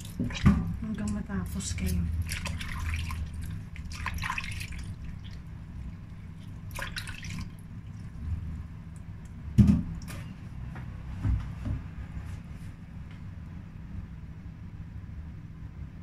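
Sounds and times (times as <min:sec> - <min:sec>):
hands splashing in water: 0:01.8 - 0:05.5, 0:06.4 - 0:07.6.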